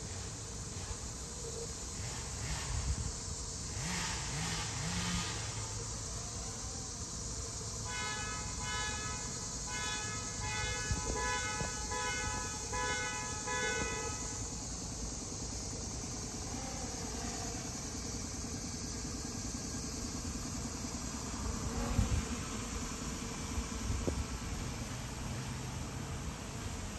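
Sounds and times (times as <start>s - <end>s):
horn short toots: 7.8s - 14.6s.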